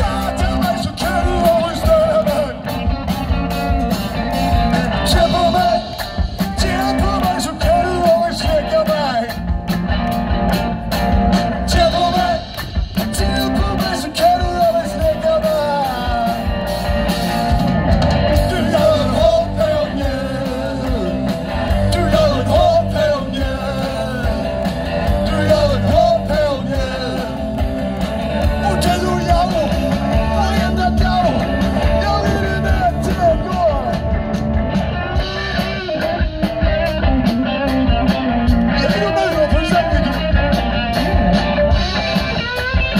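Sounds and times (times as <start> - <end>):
male lead vocal: 0.0 - 3.0, 3.6 - 9.5, 11.6 - 16.7, 18.2 - 34.1, 38.6 - 40.6
bass guitar: 0.0 - 42.9
drums: 0.0 - 42.9
electric guitars: 0.0 - 42.9.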